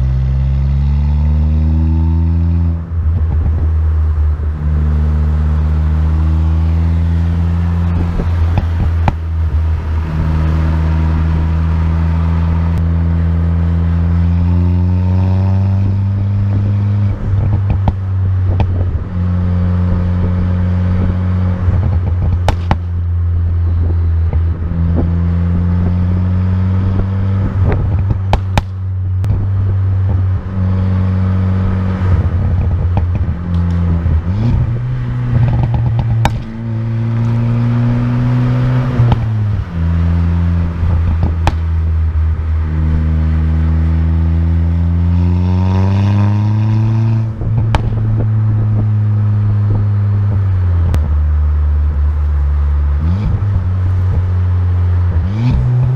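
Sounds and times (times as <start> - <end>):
car engine revving: 0.0 - 55.9
exhaust pops and crackles: 7.8 - 9.9, 17.1 - 19.1, 21.6 - 25.2, 26.9 - 30.5, 32.0 - 38.2, 38.8 - 39.9, 40.6 - 42.8, 47.2 - 55.9.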